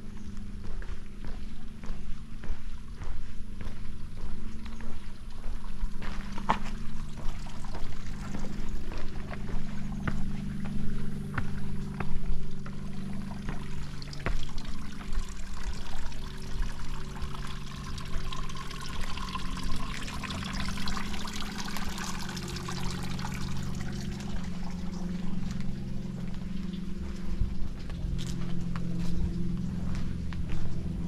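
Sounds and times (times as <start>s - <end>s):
footsteps on stone paving: 0.0s - 15.8s, 24.4s - 31.0s
low hum: 0.0s - 31.0s
water trickling down waterfall: 5.1s - 28.9s.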